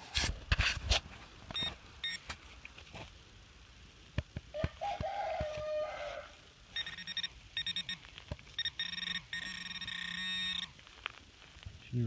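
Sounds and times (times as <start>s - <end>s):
rapid high beeping: 6.8s - 10.8s.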